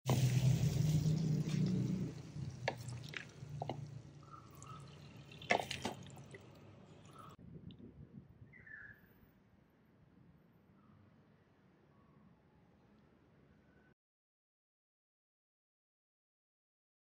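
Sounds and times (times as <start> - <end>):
sauce dripping: 0.1 - 7.4.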